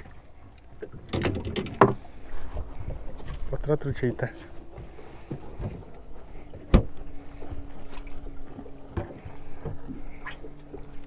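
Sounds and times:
boat motor humming: 0.0 - 11.0
knocks on boat: 1.0 - 2.0, 4.7 - 5.9, 6.6 - 7.0, 8.9 - 10.0.

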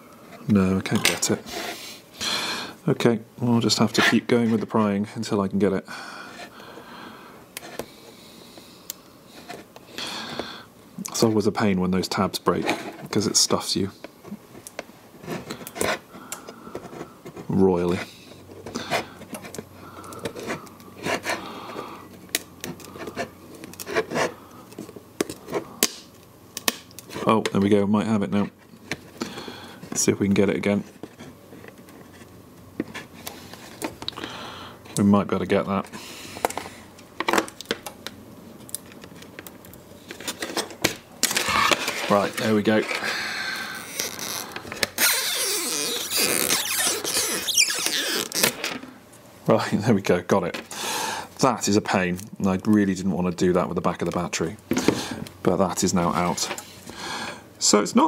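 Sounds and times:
adhesive creaking and scraping: 40.1 - 48.9
adhesive squeaking: 43.7 - 48.6.

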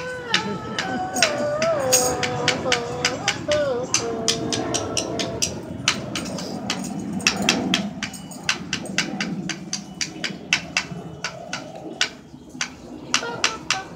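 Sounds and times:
tambourine jingles rattling: 0.9 - 2.7, 6.1 - 9.0.

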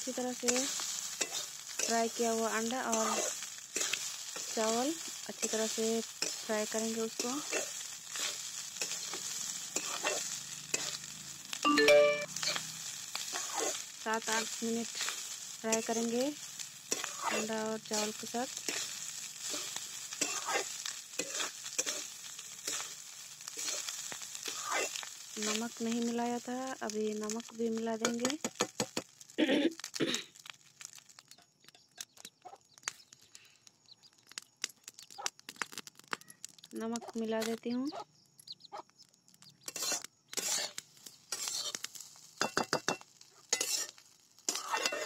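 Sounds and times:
rice sizzling in oil: 0.0 - 45.0
metal spatula scraping a pan: 0.3 - 11.1, 12.3 - 25.6, 39.6 - 45.0.

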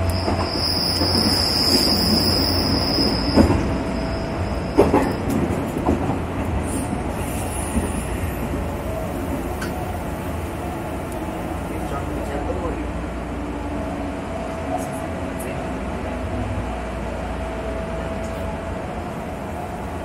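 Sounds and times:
high wheel squeal: 0.0 - 5.2.

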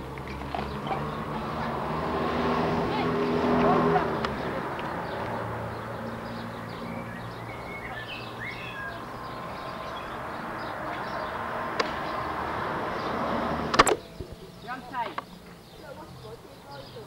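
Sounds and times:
birds chirping: 0.0 - 17.0
sharp click: 13.7 - 14.0.

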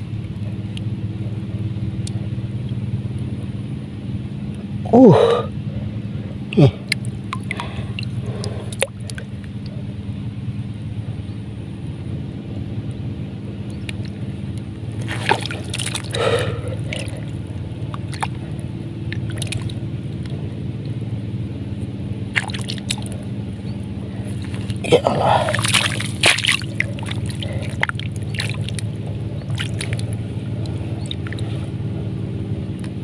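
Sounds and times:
low engine drone: 0.0 - 33.0
hands squelching in wet mud: 6.6 - 9.7, 13.9 - 20.4, 22.2 - 32.0.

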